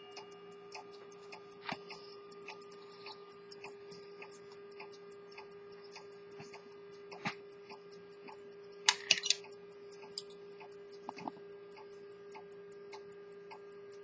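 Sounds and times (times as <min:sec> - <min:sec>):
pocket watch ticking: 0:00.0 - 0:11.1
louder watch clicks: 0:08.9 - 0:09.4.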